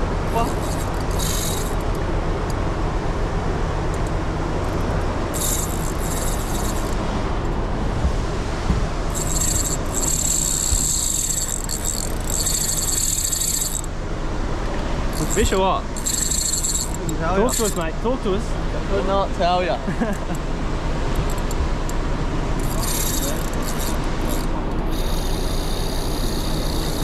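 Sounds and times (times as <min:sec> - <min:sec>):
low engine hum: 0:00.0 - 0:27.0
fishing reel buzzing: 0:00.3 - 0:02.0, 0:05.3 - 0:07.0, 0:09.1 - 0:13.9, 0:15.1 - 0:17.8, 0:22.6 - 0:27.0.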